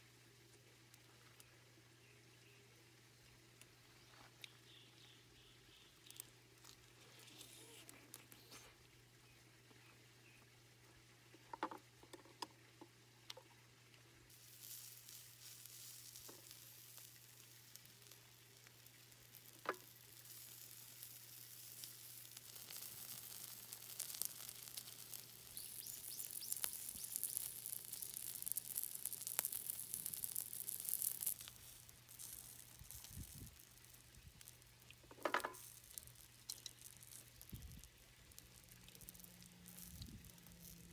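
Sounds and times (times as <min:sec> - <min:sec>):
meat sizzling on a griddle: 0:14.3 - 0:40.9
tongs clicking on metal: 0:22.3 - 0:37.8.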